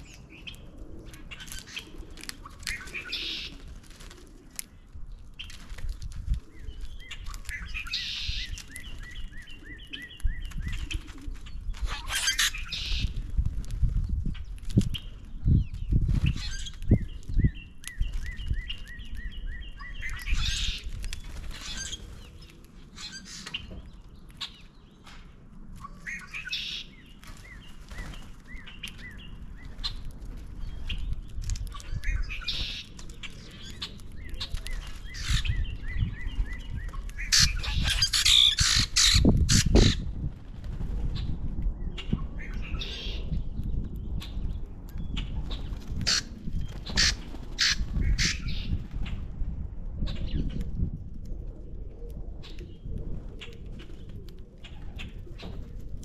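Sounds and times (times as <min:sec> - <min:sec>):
harsh bird calls and squawks: 0:00.0 - 0:05.6, 0:06.3 - 0:13.3, 0:14.2 - 0:40.3, 0:41.0 - 0:49.2
wings flapping: 0:27.2 - 0:35.6, 0:45.3 - 0:49.2.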